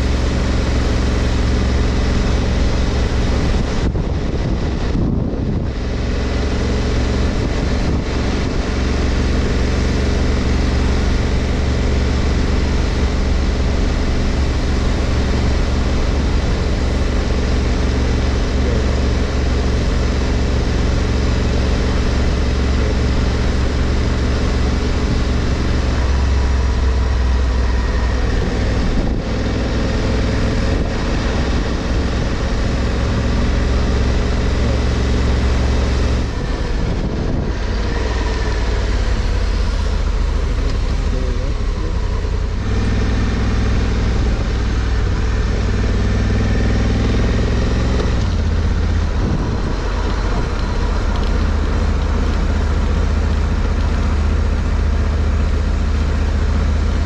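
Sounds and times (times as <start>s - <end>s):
motorcycle engine running: 0.0s - 57.0s
wet road noise: 0.0s - 57.0s
wind noise: 2.7s - 9.2s, 27.6s - 29.8s, 36.2s - 39.3s, 48.2s - 52.5s.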